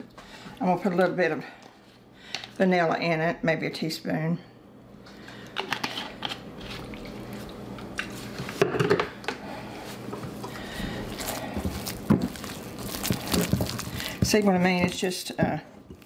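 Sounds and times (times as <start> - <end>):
kitchen clicks and knocks: 8.5 - 9.2.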